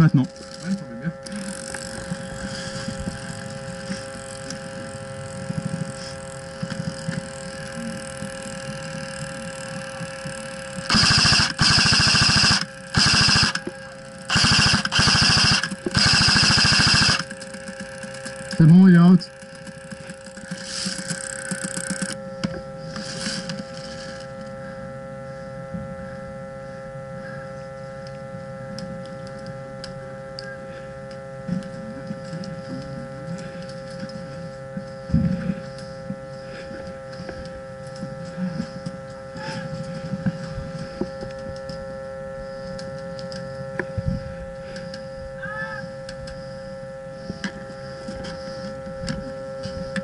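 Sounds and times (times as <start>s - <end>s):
steady electrical hum: 0.0s - 50.0s
scattered clicks: 6.6s - 22.2s.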